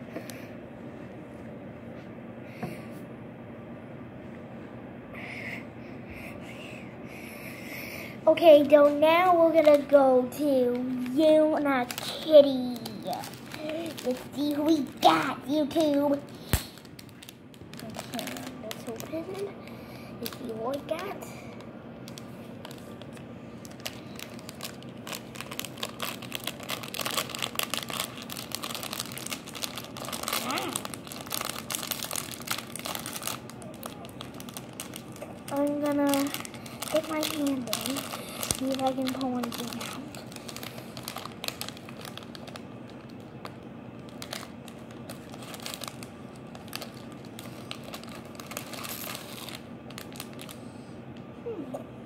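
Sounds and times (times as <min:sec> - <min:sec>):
foil packet crinkling and tearing: 0:08.5 - 0:50.6.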